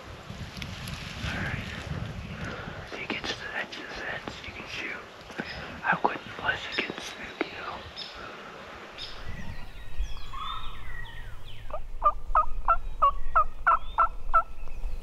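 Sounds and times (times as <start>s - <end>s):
songbirds chirping: 1.2s - 15.0s
wild turkey yelping: 11.7s - 14.5s.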